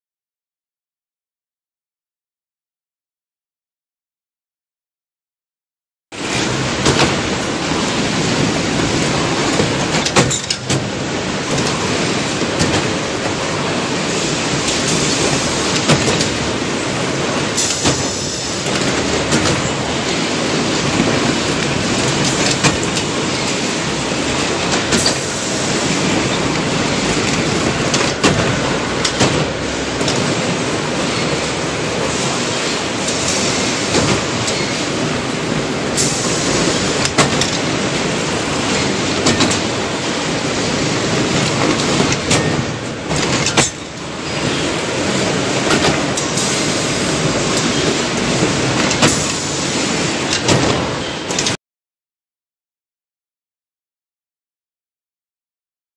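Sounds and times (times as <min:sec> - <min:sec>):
machine clattering rattle: 0:36.9 - 0:39.8, 0:41.1 - 0:46.4
sharp clicks and knocks: 0:41.4 - 0:44.0.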